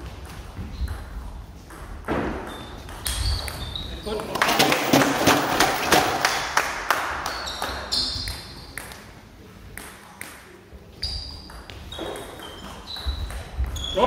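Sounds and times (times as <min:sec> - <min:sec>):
shoes squeaking on floor: 0:00.0 - 0:06.0, 0:07.2 - 0:08.8, 0:10.9 - 0:14.0.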